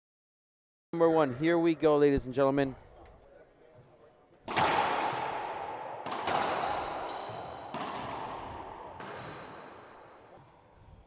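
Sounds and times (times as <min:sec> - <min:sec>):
racquetball hits echoing: 0:04.4 - 0:10.6.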